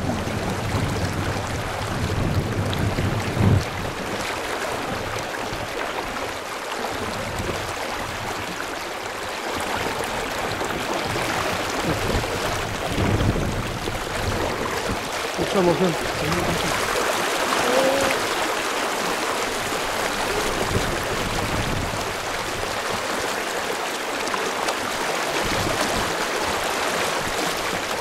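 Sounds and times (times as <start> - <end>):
low rumble on microphone: 0.0 - 5.2, 10.6 - 18.4
river rushing over gravel: 0.0 - 28.0.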